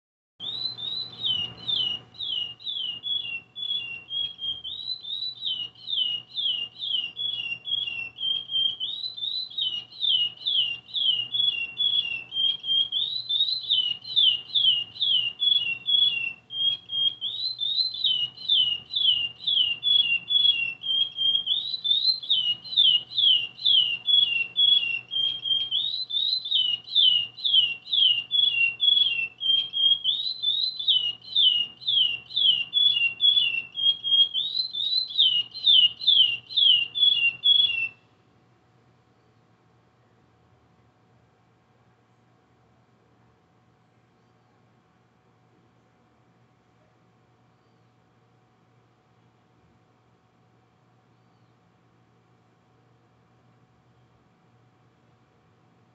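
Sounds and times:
finch singing whistled notes: 0.4 - 38.1.

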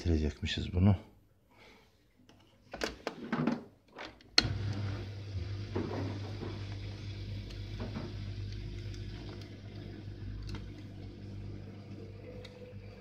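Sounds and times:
dishwasher humming: 4.4 - 13.0.

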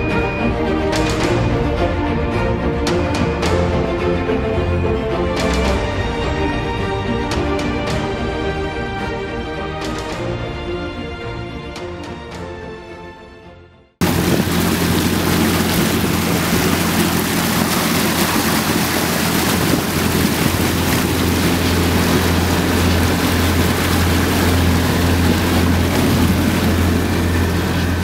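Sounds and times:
boat engine humming: 0.0 - 10.6, 14.0 - 28.0
churning wake water: 0.0 - 12.4, 14.0 - 28.0
wind noise on microphone: 14.0 - 28.0.

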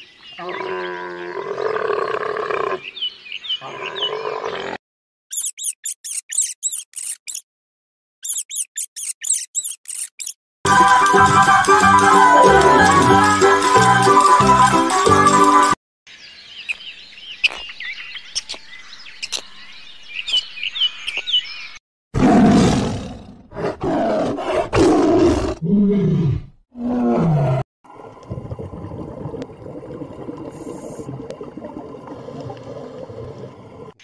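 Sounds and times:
birds chirping: 2.0 - 4.7, 16.1 - 21.8
tiger roaring and growling: 22.2 - 27.6.

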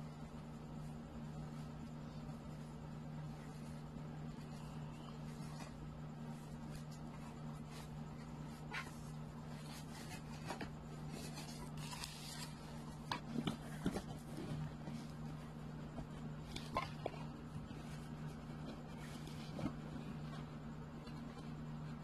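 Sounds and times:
steady low hum: 0.0 - 22.0
rustling and scraping on table: 3.4 - 20.5.

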